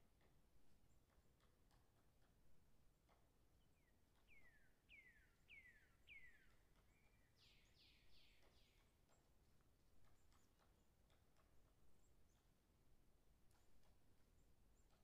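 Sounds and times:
faint bird singing: 3.6s - 15.0s.

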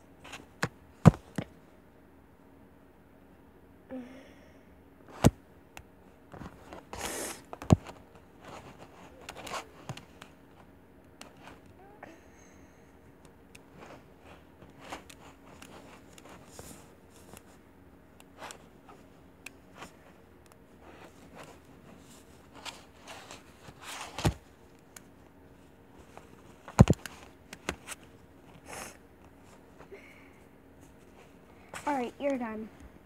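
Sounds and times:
doll clothes rustling and scraping: 6.3s - 11.7s, 13.6s - 17.7s, 18.3s - 29.9s, 30.8s - 32.6s.

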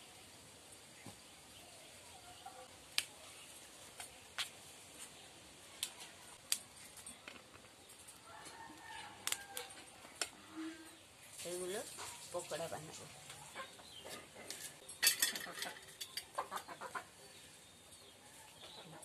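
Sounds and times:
cauliflower cracking and snapping: 9.2s - 10.3s.

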